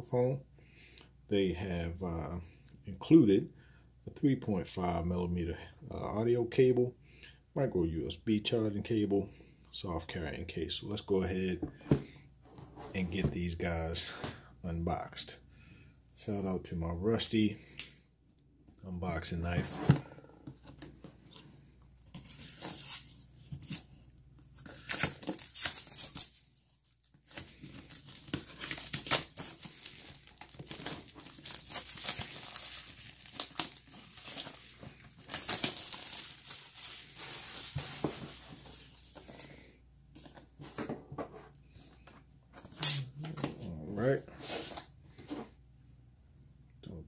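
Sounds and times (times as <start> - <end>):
shrink wrap crinkling and tearing: 24.6 - 39.2.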